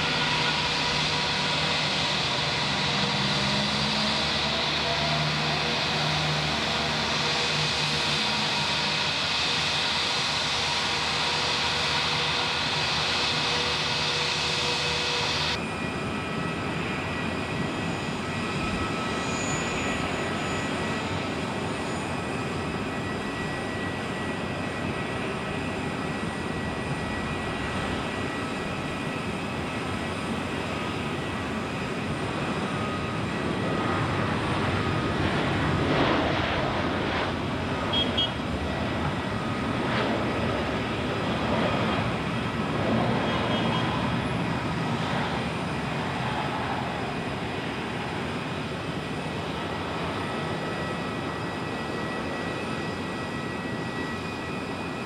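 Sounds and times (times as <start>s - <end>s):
jet airliner engines: 0.0s - 55.0s.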